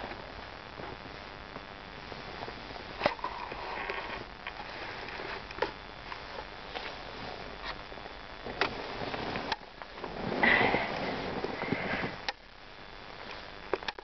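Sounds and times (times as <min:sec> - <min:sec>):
camera handling rustle: 0:03.0 - 0:07.0.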